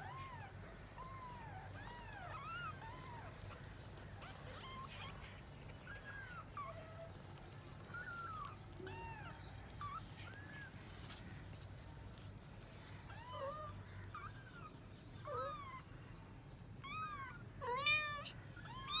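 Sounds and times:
kittens mewing: 0:16.8 - 0:19.0.

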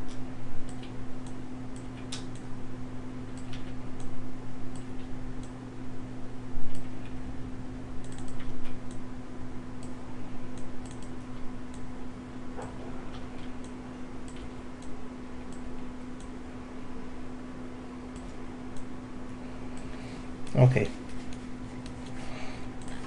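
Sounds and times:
low electrical hum: 0:00.0 - 0:23.0
mouse and keyboard clicks: 0:08.0 - 0:09.0.

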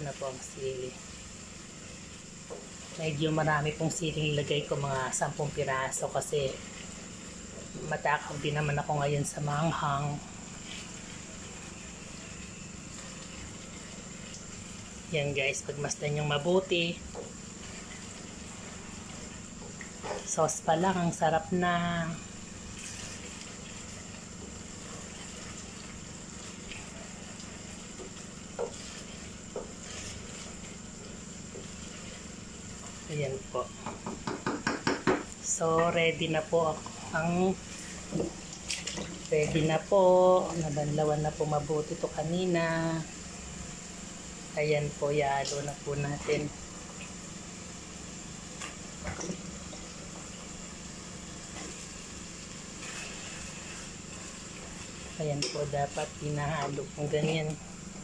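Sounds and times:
gas stove low hum: 0:00.0 - 0:58.0
sauce bubbling: 0:06.2 - 0:09.0, 0:09.7 - 0:20.6, 0:21.2 - 0:33.1, 0:36.7 - 0:42.1, 0:45.7 - 0:58.0.

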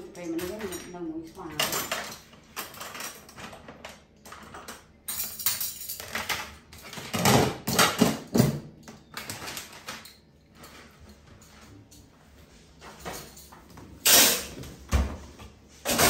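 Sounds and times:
plastic dishes clattering: 0:05.9 - 0:11.0.

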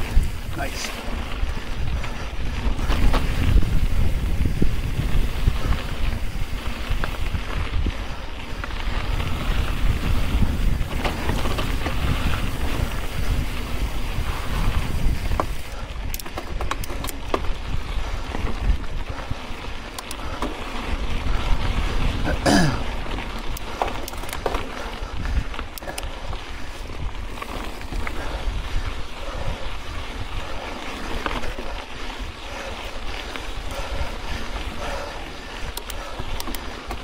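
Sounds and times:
bike rattling over rocks: 0:00.0 - 0:37.0
bike tyres rolling on dirt trail: 0:00.0 - 0:37.0
wind buffeting microphone: 0:00.0 - 0:37.0.

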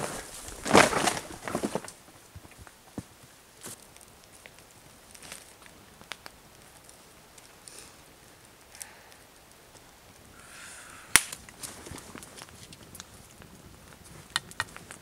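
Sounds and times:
sharp crack: 0:11.0 - 0:13.1
light clicks and snaps: 0:11.1 - 0:13.1.

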